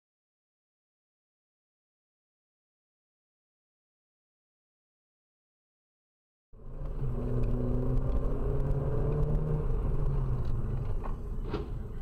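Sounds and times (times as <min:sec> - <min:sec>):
car engine and road noise: 0:06.5 - 0:12.0.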